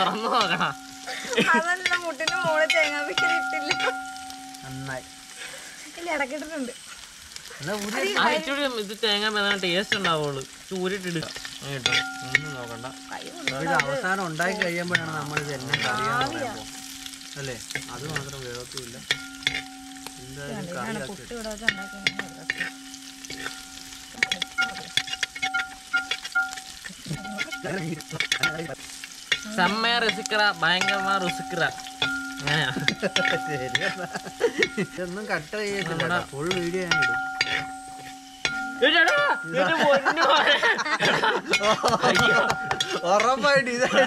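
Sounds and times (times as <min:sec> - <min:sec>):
spoon knocking against pan: 0:00.0 - 0:04.6, 0:14.6 - 0:20.2, 0:21.7 - 0:28.7, 0:29.3 - 0:35.0, 0:35.8 - 0:39.6, 0:41.0 - 0:43.4
food sizzling in hot oil: 0:00.0 - 0:44.0.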